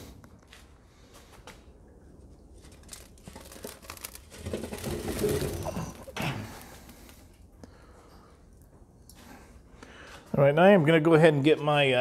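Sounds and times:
charcoal clattering: 0:02.5 - 0:07.4.

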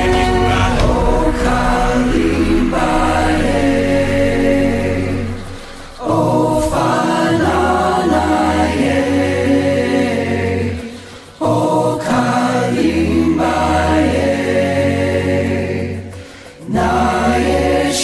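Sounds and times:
low held note: 0:00.0 - 0:06.9
choir singing chant-like phrases: 0:00.0 - 0:18.0.

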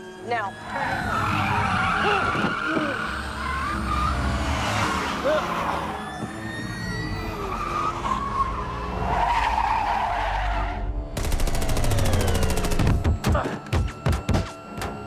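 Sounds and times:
tyres skidding and squealing: 0:00.0 - 0:11.2.

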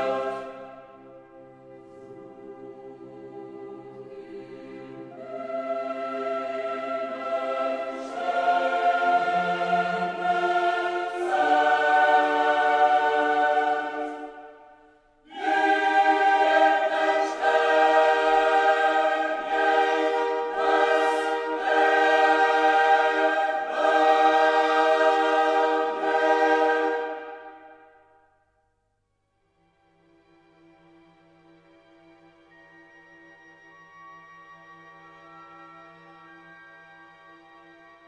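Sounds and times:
choir singing held chords: 0:00.0 - 0:28.4.

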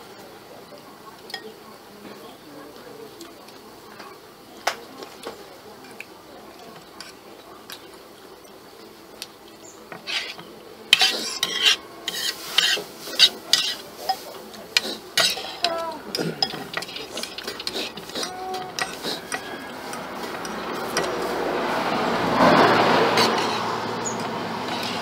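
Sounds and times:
cutlery scraping and clinking on plate: 0:09.9 - 0:21.4, 0:22.4 - 0:25.0.

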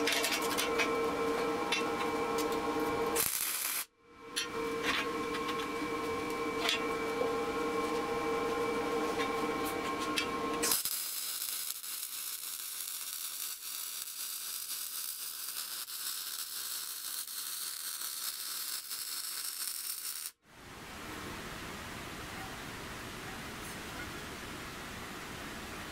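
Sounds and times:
steady multi-pitch hum: 0:00.0 - 0:11.1
welding arc crackling: 0:03.1 - 0:03.9, 0:10.6 - 0:20.4.

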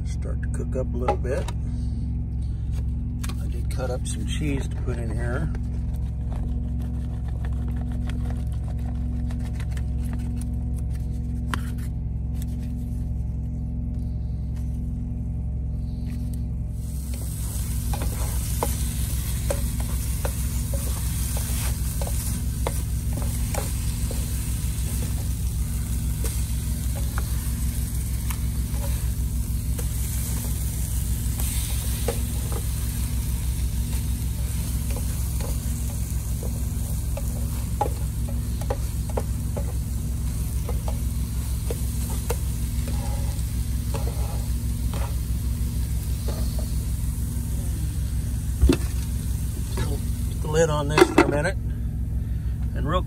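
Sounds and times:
low hum: 0:00.0 - 0:53.0
food sizzling in a pan: 0:16.8 - 0:50.4
plastic spatula scraping pan: 0:42.1 - 0:45.2.

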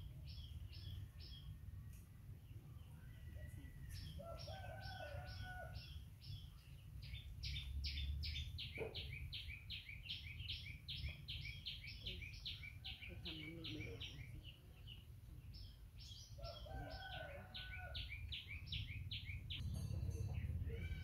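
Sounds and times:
low rumble: 0:18.6 - 0:21.0.

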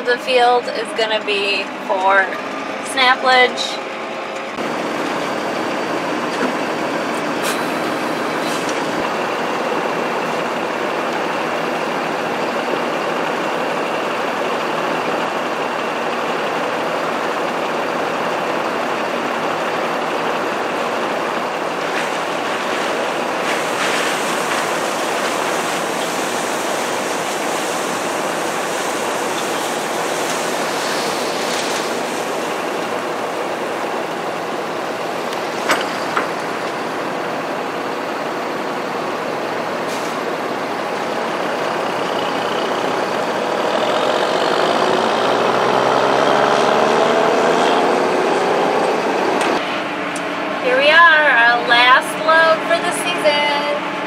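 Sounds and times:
tractor machine noise: 0:00.0 - 0:54.0
silage pouring hiss: 0:21.8 - 0:34.0.

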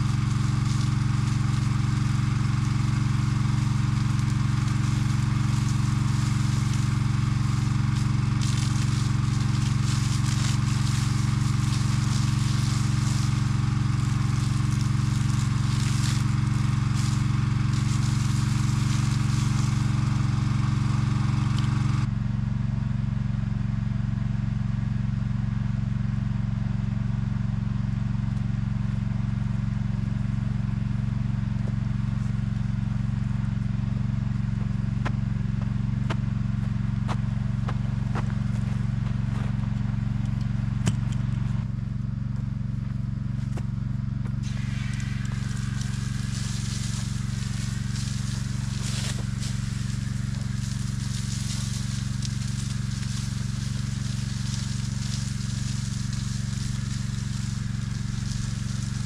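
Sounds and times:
hose jet spraying hiss: 0:00.0 - 0:22.1, 0:44.3 - 0:59.0
pump engine running steadily: 0:00.0 - 0:59.0.

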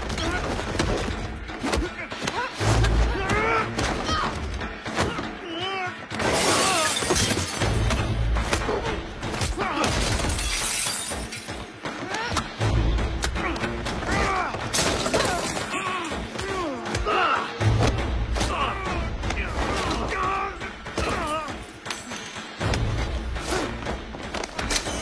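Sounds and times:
dramatic music score: 0:00.0 - 0:25.0
glass shattering: 0:06.2 - 0:07.9, 0:09.9 - 0:11.6.

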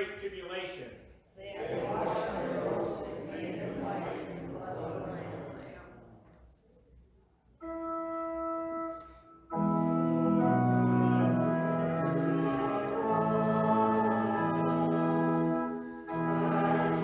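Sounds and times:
church organ chords: 0:07.6 - 0:17.0.

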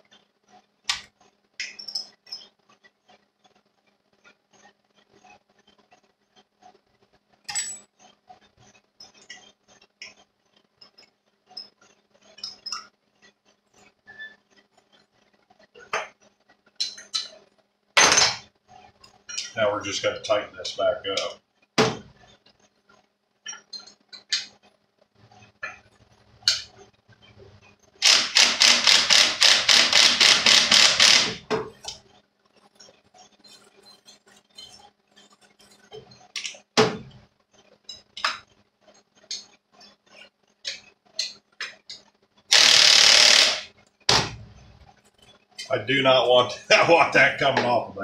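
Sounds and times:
metal tools clinking on bench: 0:07.4 - 0:08.0, 0:16.8 - 0:17.4, 0:19.0 - 0:19.6
cordless drill clicking: 0:28.0 - 0:31.4, 0:42.5 - 0:43.6.

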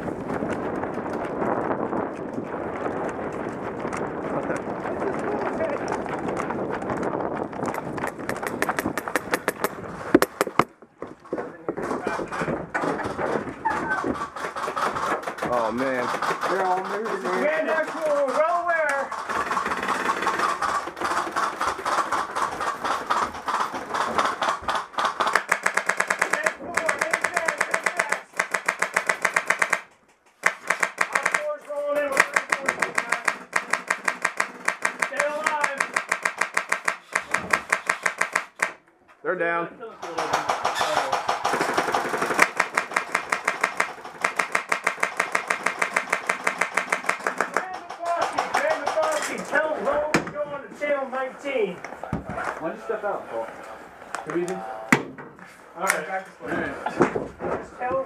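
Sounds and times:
footsteps on hollow floor: 0:00.0 - 0:14.4
airsoft rifle firing rapidly: 0:12.8 - 0:38.8, 0:40.0 - 0:49.4.

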